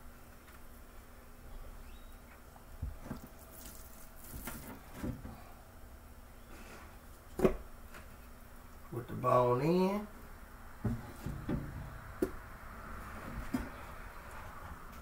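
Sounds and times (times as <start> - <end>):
wet squishing of raw meat: 3.2 - 4.7
light bumps: 10.8 - 12.5.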